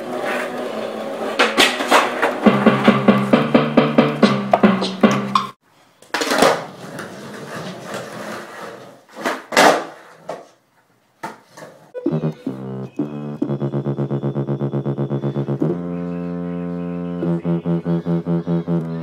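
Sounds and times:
skateboard wheels rolling on concrete: 0.0 - 3.3, 6.0 - 11.9
music with steady beat: 2.4 - 5.6, 12.0 - 19.0
skateboard popping and landing: 9.2 - 10.4.

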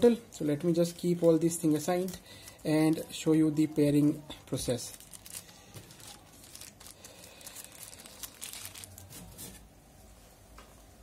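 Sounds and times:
plastic bags crinkling: 0.3 - 3.3, 4.5 - 9.6.

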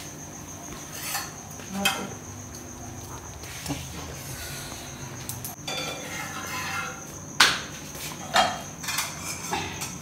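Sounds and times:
metal utensils clanking on pan: 0.9 - 2.1, 5.4 - 7.6, 8.2 - 10.0.

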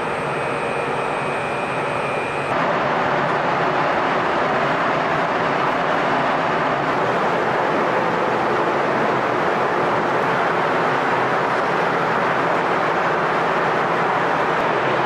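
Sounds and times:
faint high whine: 0.0 - 4.2
loud rushing noise: 0.0 - 15.0.

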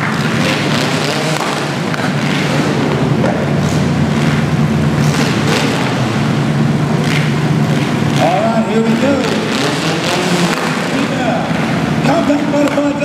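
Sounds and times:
car engines rumbling: 0.0 - 13.0
engine pops and revs: 0.0 - 13.0.

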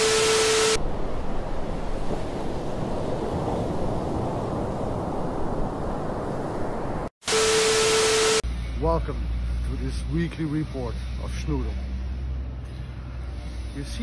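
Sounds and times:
tv static: 0.0 - 0.8
sea waves: 0.8 - 7.1.

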